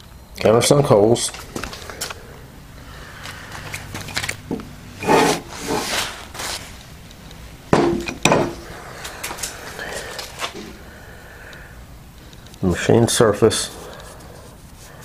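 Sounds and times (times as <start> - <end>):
heavy metal plate clunking: 7.7 - 8.7.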